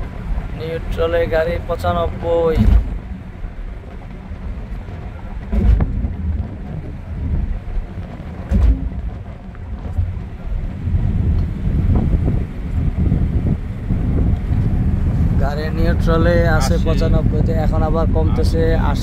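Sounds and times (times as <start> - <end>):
car cabin road rumble: 0.0 - 19.0
heavy thumps: 2.2 - 16.2.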